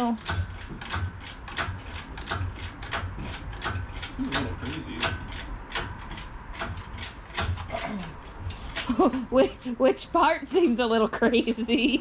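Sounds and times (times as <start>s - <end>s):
hydraulic hoist pump clanking: 0.0s - 9.2s.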